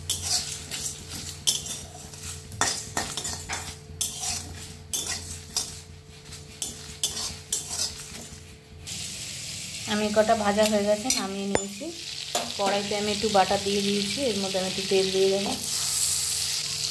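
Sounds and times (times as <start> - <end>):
metal spoon scraping metal pan: 0.0 - 8.4, 10.6 - 11.8.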